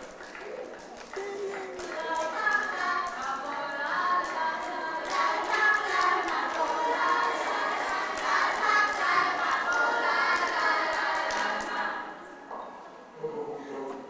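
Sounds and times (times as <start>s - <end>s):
hand claps: 0.0s - 11.9s
girls singing together: 1.5s - 12.5s.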